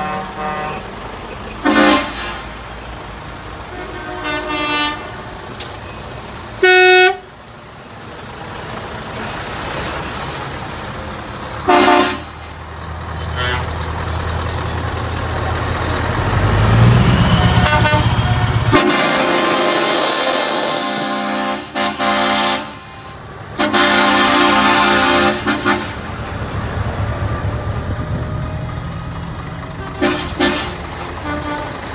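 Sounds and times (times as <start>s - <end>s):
truck horns tooting: 0.0s - 2.8s, 3.6s - 7.4s, 11.6s - 14.0s, 15.7s - 26.4s, 29.7s - 31.9s
diesel engine rumble: 0.0s - 31.9s
broad rush of noise: 13.7s - 21.8s.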